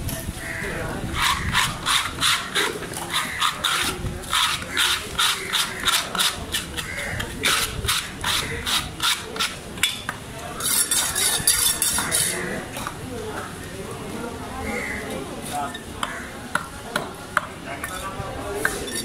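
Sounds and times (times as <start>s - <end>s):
knife sharpening scrapes: 10.6s - 12.4s, 17.8s - 19.0s.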